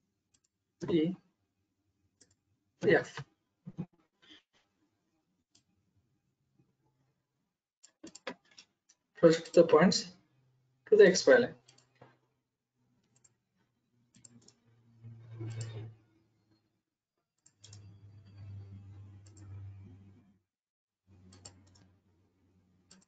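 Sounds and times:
computer mouse clicks: 0:07.8 - 0:08.6, 0:09.4 - 0:09.7, 0:14.1 - 0:14.6, 0:15.2 - 0:15.9, 0:17.4 - 0:20.1, 0:21.2 - 0:21.9
faint low hum: 0:17.6 - 0:20.4.

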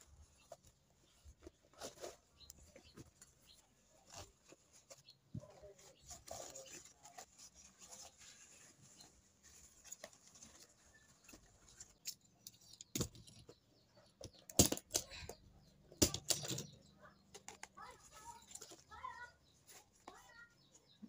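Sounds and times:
leaf rustling and crinkling: 0:00.4 - 0:12.0.

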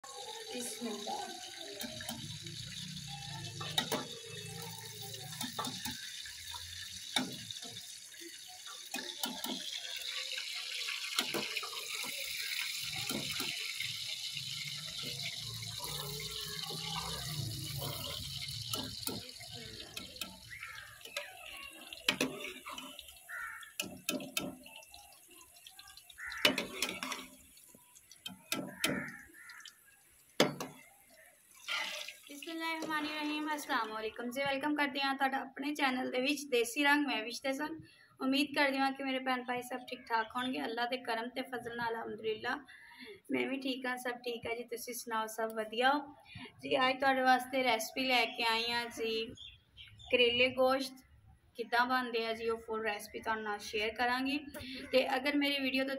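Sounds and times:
meat sizzling in a wok: 0:00.1 - 0:33.1.

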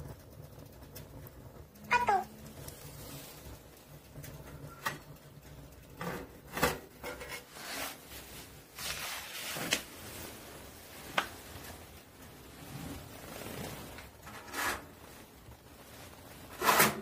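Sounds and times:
metal lid clinking and scraping: 0:06.0 - 0:07.9, 0:16.5 - 0:17.0.

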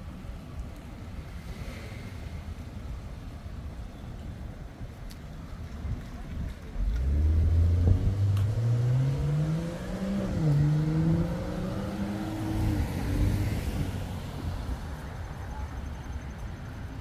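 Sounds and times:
vehicle engine accelerating: 0:06.8 - 0:14.2.

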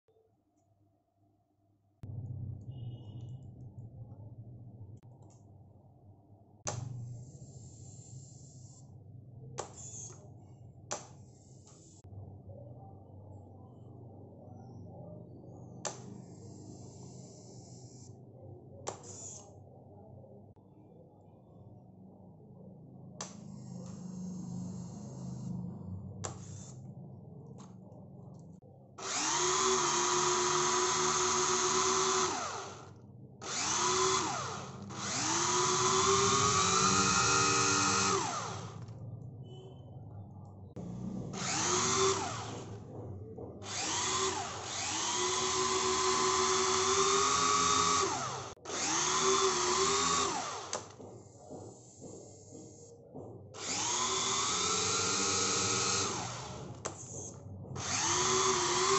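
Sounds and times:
electric propeller motors whining: 0:29.0 - 0:38.9, 0:40.8 - 0:42.8, 0:43.7 - 0:50.9, 0:53.6 - 0:58.9.

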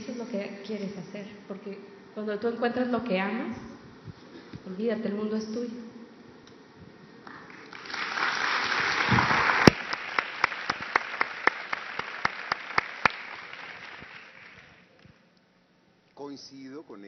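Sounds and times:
audience applause: 0:07.3 - 0:14.9
close sharp hand claps: 0:07.3 - 0:15.1.

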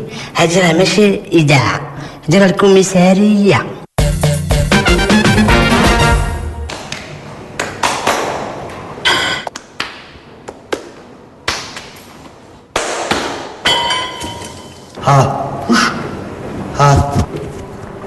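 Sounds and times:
gym weights clanking: 0:13.6 - 0:15.0.

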